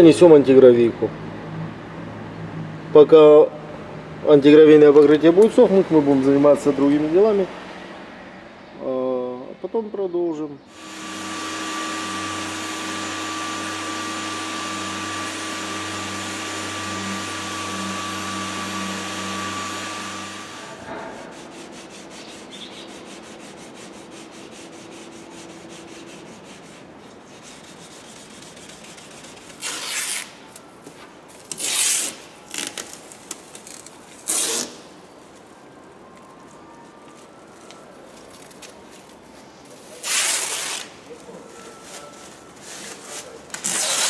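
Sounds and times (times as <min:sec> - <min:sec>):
power sander running: 0:10.7 - 0:20.8
masking tape ripping off roll: 0:27.6 - 0:30.7, 0:31.3 - 0:35.0, 0:39.9 - 0:41.2, 0:42.6 - 0:44.0.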